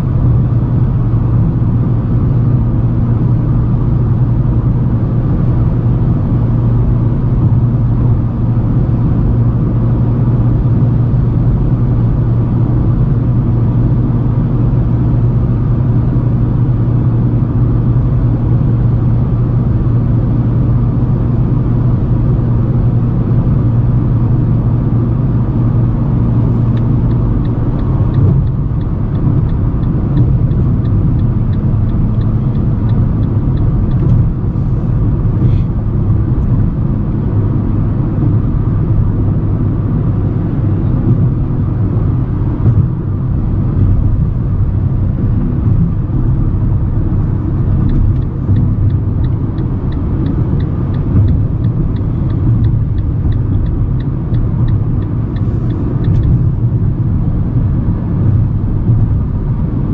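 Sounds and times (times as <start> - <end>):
car engine and tyre drone: 0.0 - 59.9
light regular ticking: 26.6 - 34.4, 47.3 - 56.8.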